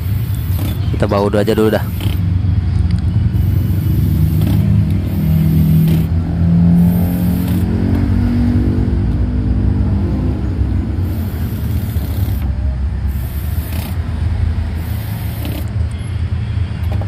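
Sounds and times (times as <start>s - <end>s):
cordless drill driving screws: 1.5s - 2.2s, 15.0s - 15.7s.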